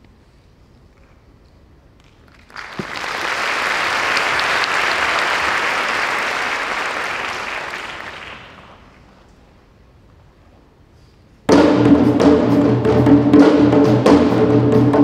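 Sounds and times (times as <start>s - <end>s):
audience applauding: 2.2s - 9.2s.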